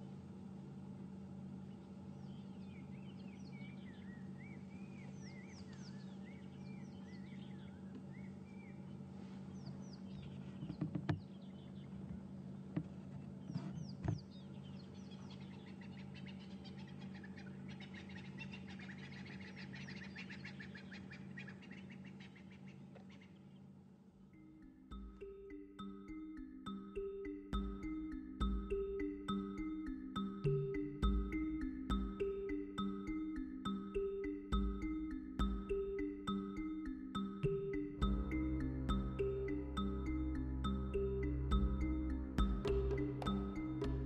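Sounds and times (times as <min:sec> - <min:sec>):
steady low hum: 0:00.0 - 0:44.0
birds chirping: 0:01.6 - 0:44.0
rapid bird trilling chorus: 0:13.4 - 0:23.7.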